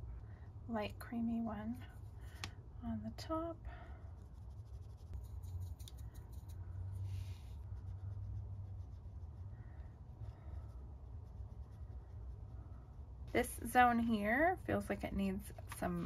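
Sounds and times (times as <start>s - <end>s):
low steady hum: 0.0s - 16.0s
paintbrush scratching on paper: 4.0s - 14.1s.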